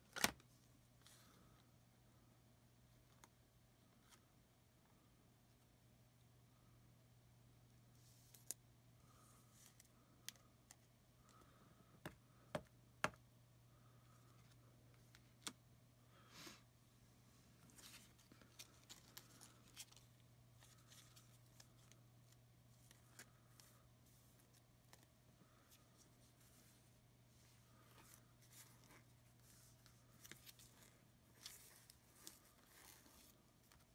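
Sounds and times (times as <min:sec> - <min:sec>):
low steady hum: 0:00.1 - 0:33.9.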